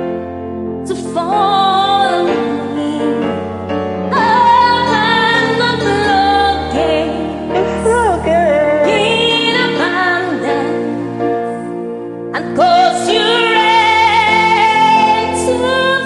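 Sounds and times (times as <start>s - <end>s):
karaoke backing track: 0.0s - 16.0s
woman singing: 0.8s - 11.4s, 12.3s - 16.0s.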